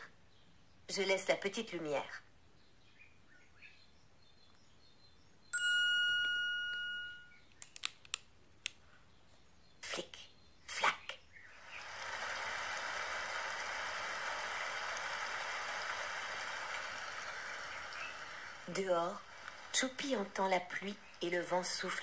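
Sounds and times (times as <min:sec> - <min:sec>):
bright app chime: 0:05.6 - 0:07.4
rain and wind sound effect: 0:11.6 - 0:21.2.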